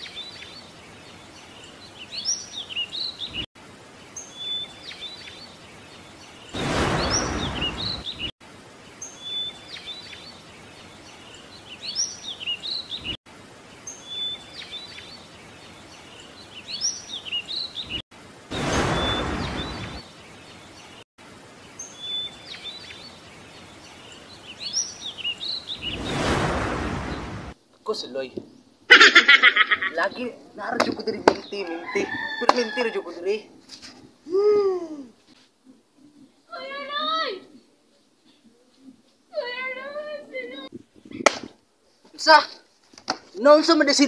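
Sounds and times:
birds chirping: 0.0s - 42.7s
rush of noise: 6.6s - 8.3s, 18.5s - 20.0s, 25.8s - 27.6s.

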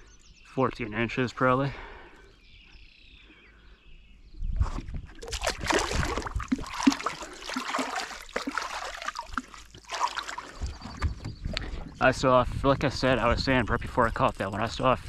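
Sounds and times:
water splashing and sloshing: 4.6s - 11.9s.

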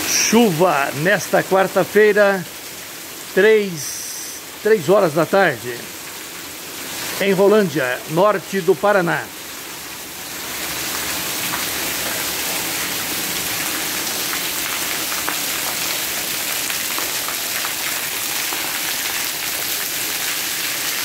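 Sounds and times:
heavy rain on tiles: 0.0s - 21.0s
individual raindrop ticks: 13.6s - 16.0s.

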